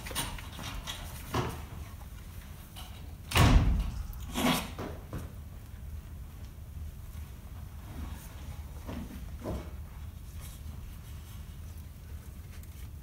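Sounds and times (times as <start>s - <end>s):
door opening and shutting: 3.3s - 5.0s.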